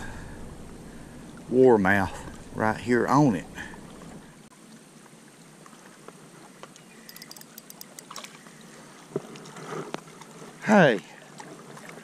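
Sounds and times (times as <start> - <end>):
lake water lapping: 0.1 - 4.4, 5.6 - 12.0
fishing reel and line ticks: 7.0 - 8.4.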